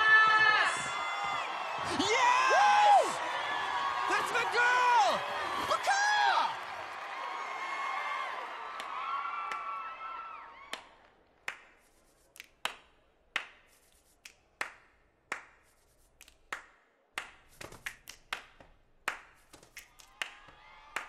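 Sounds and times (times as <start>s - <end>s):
hand claps: 8.4s - 9.8s, 10.7s - 21.0s
finger snaps: 11.5s - 20.4s.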